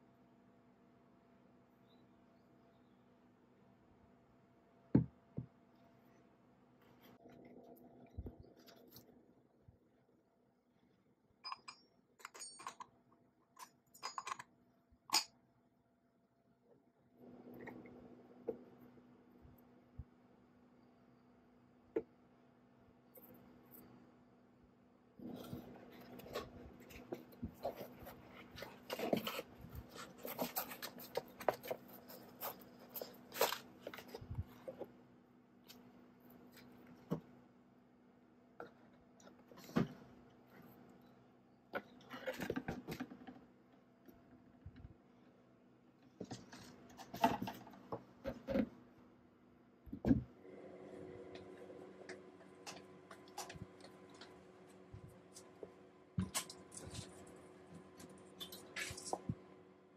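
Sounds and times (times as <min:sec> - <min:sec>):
faint steady hum: 0:00.0 - 0:59.9
rubbing and scraping on foam: 0:25.2 - 0:34.8.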